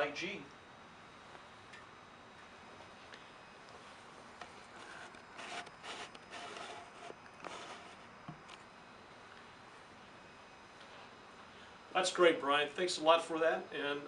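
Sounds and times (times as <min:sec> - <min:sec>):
faint rustling and scraping: 0:03.8 - 0:08.7.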